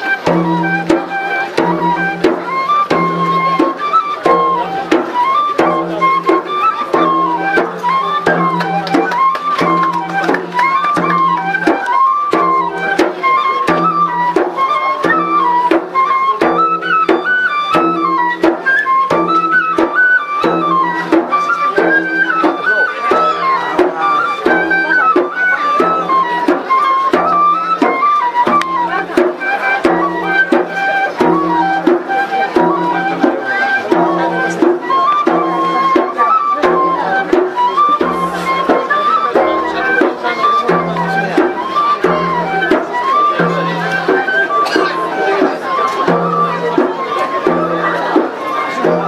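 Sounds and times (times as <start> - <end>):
drum beat: 0.2 - 6.4, 7.0 - 12.9, 13.6 - 14.4, 27.1 - 29.2, 38.1 - 38.6.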